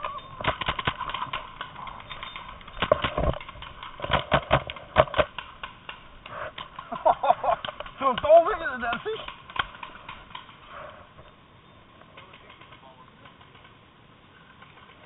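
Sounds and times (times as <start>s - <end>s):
paintball markers firing: 0.4s - 10.6s.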